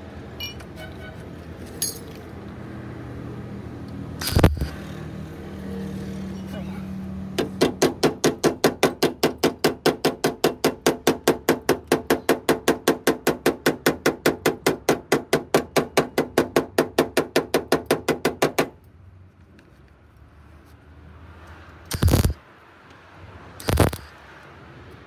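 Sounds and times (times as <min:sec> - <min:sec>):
hammering on sheet steel: 0:07.3 - 0:18.8.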